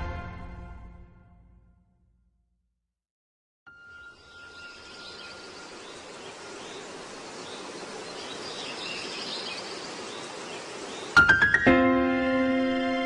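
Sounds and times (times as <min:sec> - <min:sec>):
steady hiss: 0:04.8 - 0:11.4.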